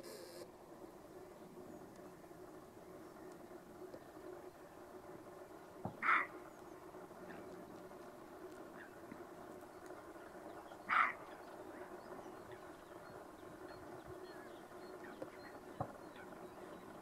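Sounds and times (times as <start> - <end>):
deer barking: 6.0 - 6.4, 10.9 - 11.4.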